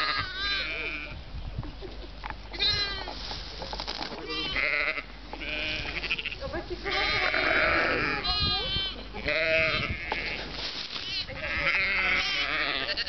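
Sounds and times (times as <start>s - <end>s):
sheep bleating: 4.2s - 10.4s, 11.1s - 13.0s.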